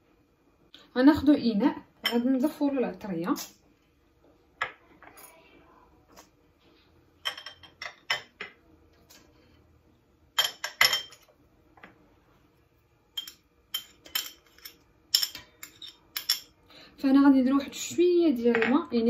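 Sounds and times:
spices clinking in steel bowl: 0:13.2 - 0:16.5.

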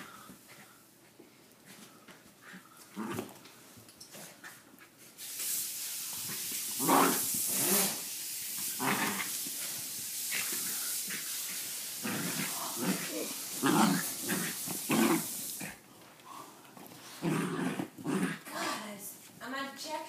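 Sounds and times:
steady hiss: 0:00.0 - 0:17.2
small dog growling: 0:06.8 - 0:08.0, 0:08.7 - 0:09.4, 0:12.0 - 0:15.8, 0:17.1 - 0:18.5.

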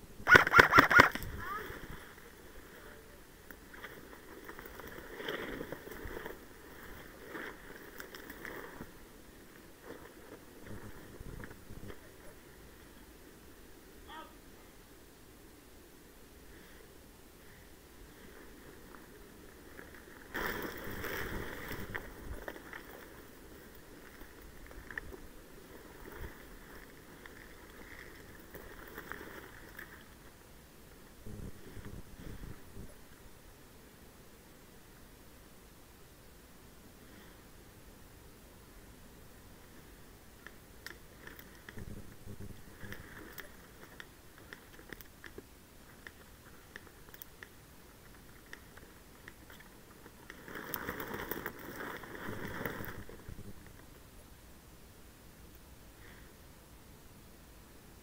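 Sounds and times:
wind rumbling on microphone: 0:00.0 - 0:12.9, 0:18.0 - 0:30.3, 0:31.2 - 0:33.2, 0:41.2 - 0:44.0, 0:48.1 - 0:54.0
faint clicks and rustles: 0:00.3 - 0:13.6, 0:16.5 - 0:33.2, 0:39.3 - 0:54.4
dry twigs snapping: 0:48.1 - 0:53.0.

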